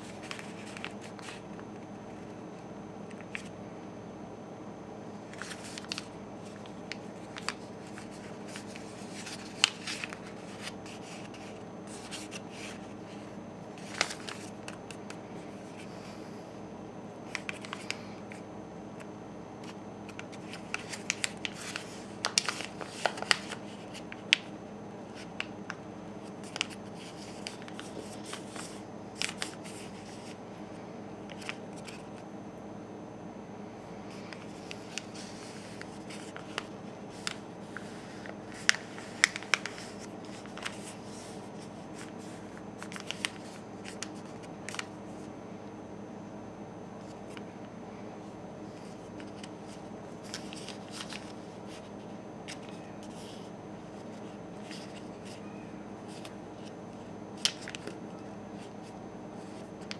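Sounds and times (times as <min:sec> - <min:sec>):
paper being folded and creased: 0:00.0 - 0:01.5, 0:05.3 - 0:13.2, 0:13.8 - 0:14.9, 0:17.3 - 0:18.0, 0:19.6 - 0:24.5, 0:26.3 - 0:30.4, 0:34.1 - 0:44.9, 0:48.7 - 0:55.4
steady low hum: 0:00.0 - 0:59.9.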